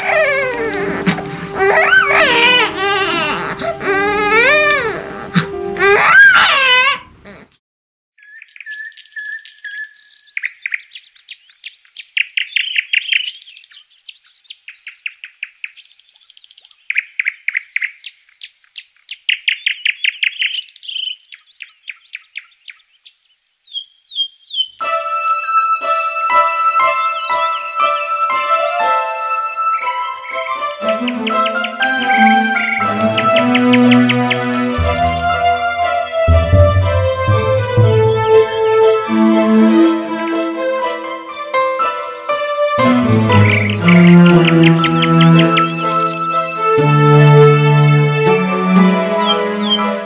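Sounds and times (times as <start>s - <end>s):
newborn baby crying: 0.0s - 7.6s
songbirds trilling: 8.2s - 24.8s, 26.3s - 41.2s, 41.9s - 50.0s.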